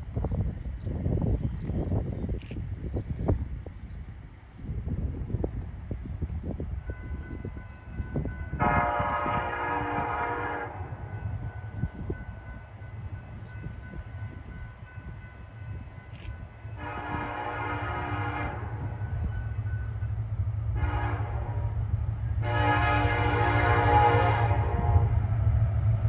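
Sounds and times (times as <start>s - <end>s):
wind rumble on microphone: 0.0s - 26.0s
train air horn blasts: 8.5s - 11.2s, 16.6s - 19.3s, 20.7s - 25.4s.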